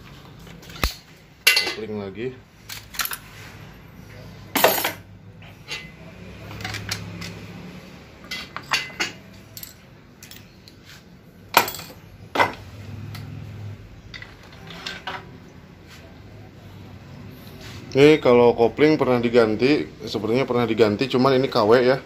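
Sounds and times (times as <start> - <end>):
metal clutch plates clinking: 8.2 - 10.8.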